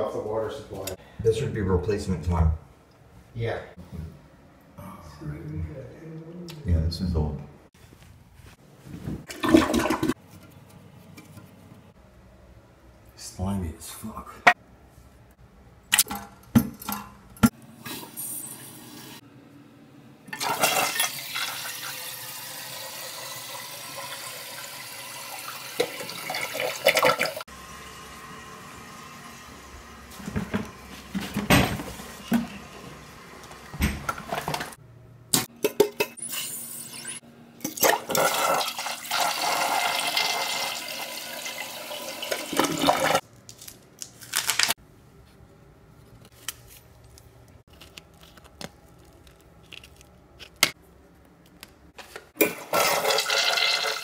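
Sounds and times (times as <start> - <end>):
toilet flushing: 9.3 - 10.2, 20.3 - 34.8, 36.2 - 43.2, 52.4 - 54.0.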